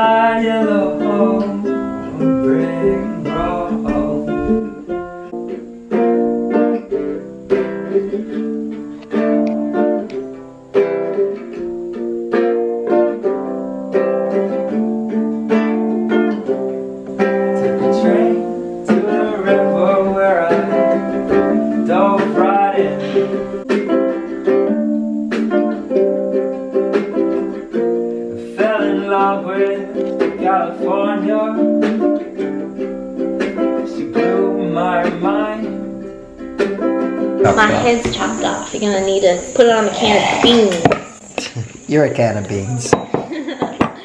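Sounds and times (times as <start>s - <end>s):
man singing: 0.0s - 4.8s, 17.5s - 23.6s, 28.3s - 32.1s, 33.8s - 35.9s
acoustic guitar strummed and plucked: 0.0s - 41.6s.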